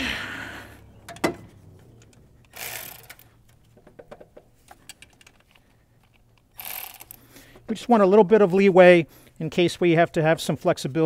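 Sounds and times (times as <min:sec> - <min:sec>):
hand ratchet clicking: 0:02.0 - 0:03.3, 0:04.8 - 0:07.2.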